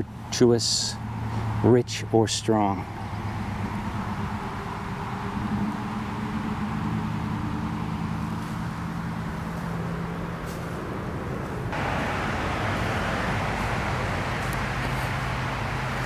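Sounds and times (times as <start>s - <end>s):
low engine drone: 0.0s - 16.0s
rushing noise: 3.1s - 16.0s.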